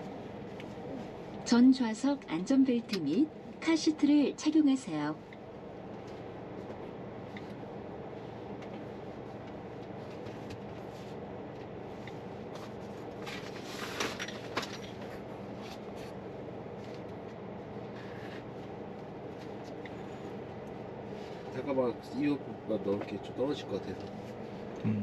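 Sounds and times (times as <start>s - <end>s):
low cabin hum: 0.0s - 25.0s.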